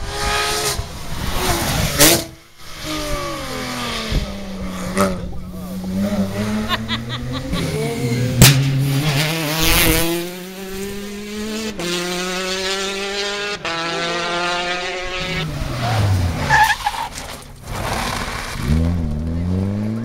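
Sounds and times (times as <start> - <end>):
engine at steady high revs: 0.0 - 15.6
engine revving under acceleration: 0.0 - 16.5, 17.7 - 20.0
rally car engine passing: 0.0 - 20.0.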